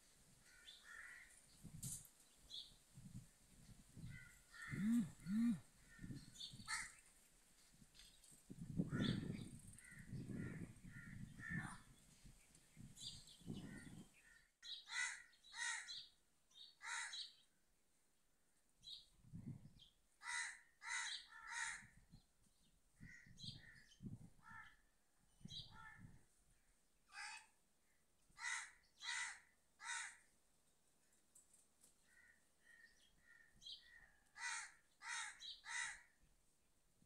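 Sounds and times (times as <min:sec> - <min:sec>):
crows cawing: 0:00.5 - 0:01.4, 0:04.1 - 0:06.1, 0:06.7 - 0:07.0, 0:08.9 - 0:11.7, 0:13.7 - 0:16.0, 0:16.8 - 0:17.3, 0:20.2 - 0:21.9, 0:24.4 - 0:24.8, 0:28.4 - 0:30.3, 0:32.1 - 0:36.2.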